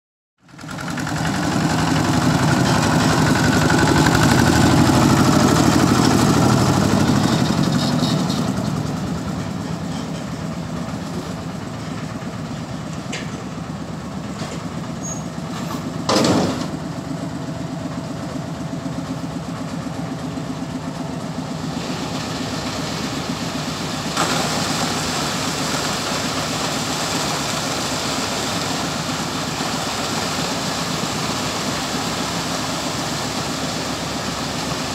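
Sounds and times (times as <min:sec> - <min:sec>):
diesel truck engine running: 0:00.4 - 0:34.9
concrete pouring down chute: 0:00.5 - 0:12.9, 0:20.0 - 0:34.9.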